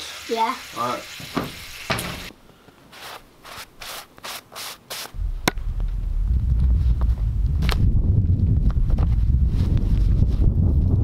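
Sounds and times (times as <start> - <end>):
wind rumble on microphone: 5.2 - 11.0.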